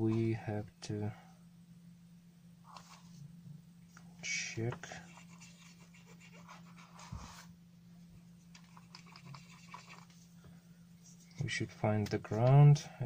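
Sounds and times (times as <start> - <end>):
steady low hum: 0.0 - 13.0
faint ticks and scratches: 8.2 - 10.3.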